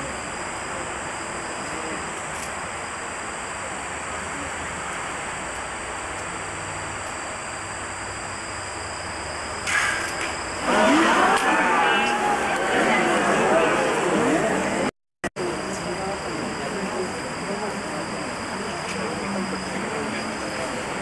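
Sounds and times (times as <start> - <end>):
faint high whine: 0.0 - 21.0
voices: 10.6 - 21.0.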